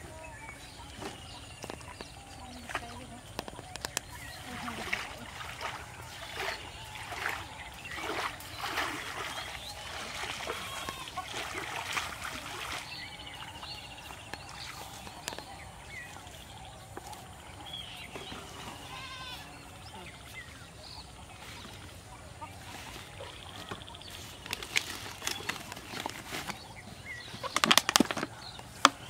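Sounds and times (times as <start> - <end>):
fish thrashing and splashing water: 4.1 - 15.4.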